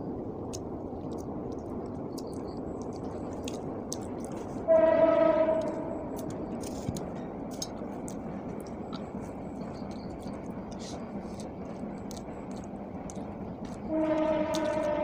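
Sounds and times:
person chewing and eating: 0.5 - 4.6, 5.6 - 14.9
horn blast: 4.6 - 6.0, 13.9 - 15.0.

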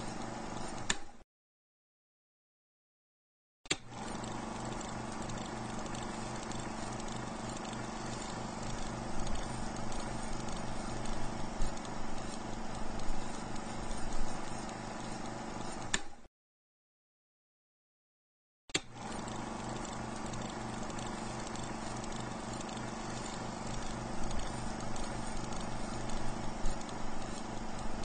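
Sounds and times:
film projector whirring and clattering: 0.0 - 1.1, 3.7 - 16.2, 18.8 - 28.0
projector click: 14.6 - 16.2, 18.7 - 28.0.

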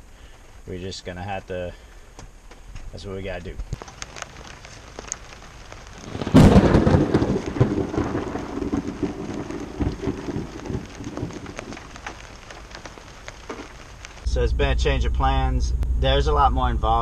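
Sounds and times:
rain falling: 0.2 - 15.5
thunder crack and rumbles: 3.8 - 17.0.

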